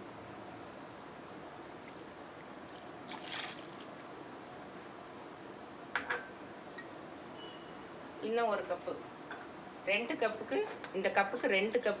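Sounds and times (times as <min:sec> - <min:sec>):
water splashing: 0:01.9 - 0:03.9
water pouring into pan: 0:02.0 - 0:03.8.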